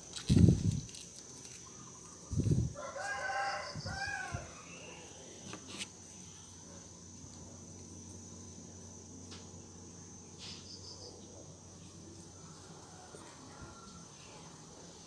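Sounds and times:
high insect whine: 0.0s - 15.0s
rooster crowing: 2.7s - 5.1s, 12.3s - 14.5s.

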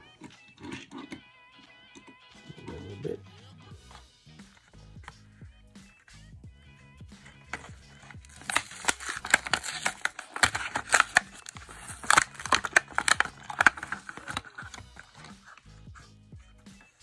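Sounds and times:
blister pack ripping and crinkling: 7.2s - 15.7s.

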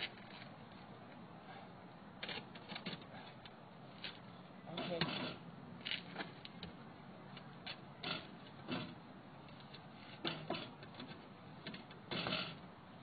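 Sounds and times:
scrapes creaks and clicks: 0.0s - 1.2s, 4.8s - 6.8s.

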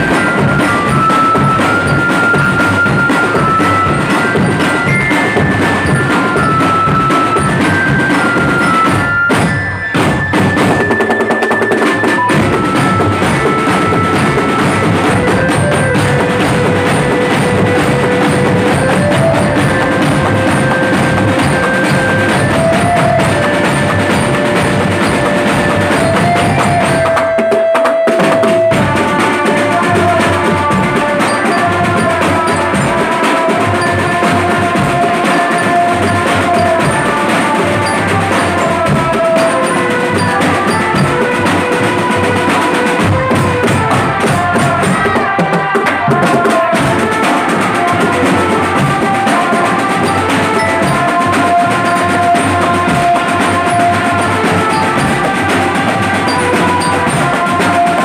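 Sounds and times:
marching drums: 0.0s - 58.0s.

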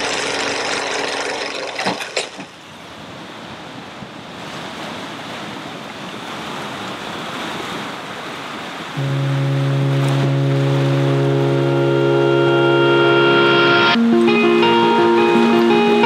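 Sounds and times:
ocean surf rushing: 2.6s - 16.0s.

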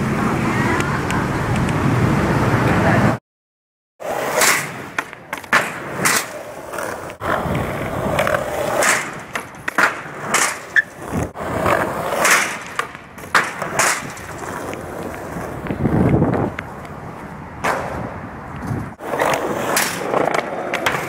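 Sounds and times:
skateboard wheels rolling on concrete: 0.0s - 3.2s, 4.0s - 21.0s
skateboard clacks: 4.2s - 21.0s.

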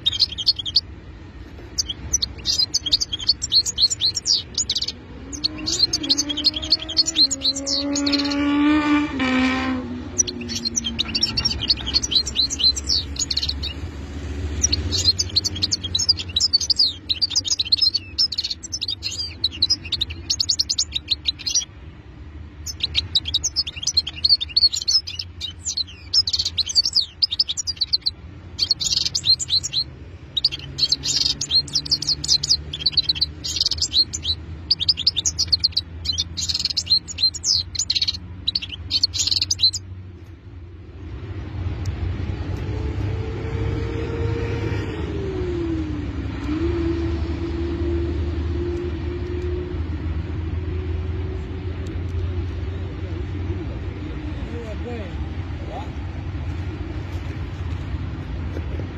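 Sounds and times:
goldfinch singing: 0.0s - 8.8s, 10.1s - 21.8s, 22.5s - 40.0s.

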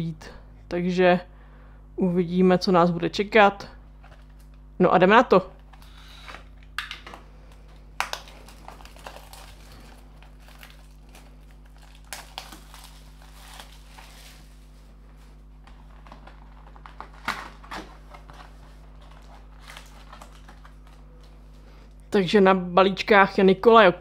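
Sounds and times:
plastic shrink wrap crinkling: 4.0s - 4.7s, 5.6s - 21.7s
foil packs rustling: 5.6s - 21.7s.

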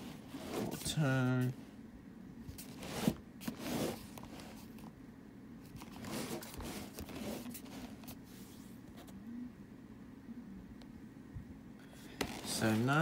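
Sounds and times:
cardboard box scraping and rustling: 0.0s - 1.0s, 2.6s - 4.7s, 5.8s - 8.2s.

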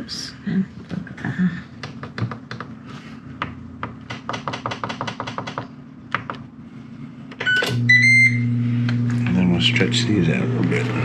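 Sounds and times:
cooker humming: 6.5s - 11.0s.

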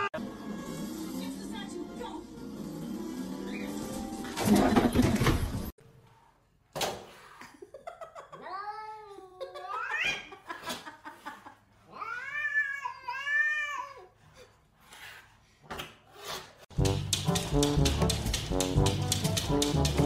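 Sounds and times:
music: 0.2s - 5.0s, 16.7s - 20.0s.

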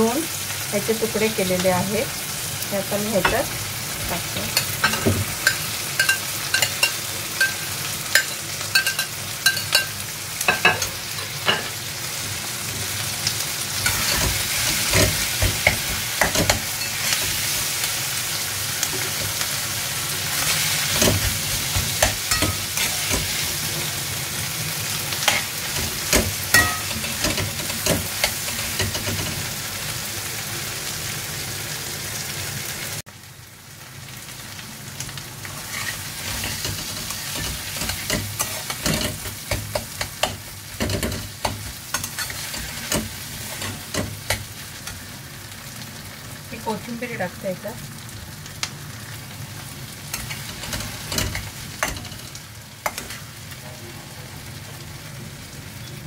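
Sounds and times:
food sizzling in oil: 0.0s - 56.0s
metal spatula scraping and tapping: 20.9s - 23.4s, 35.7s - 44.5s, 50.1s - 53.2s.

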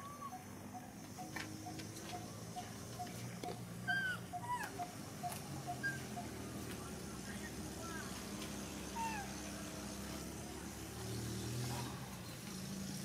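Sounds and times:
monkeys squeaking: 0.0s - 6.5s, 8.9s - 9.4s.

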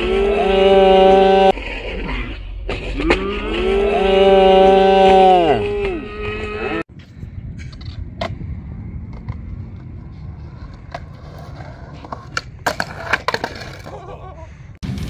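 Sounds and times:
skateboard wheels rolling on concrete: 4.6s - 15.0s.

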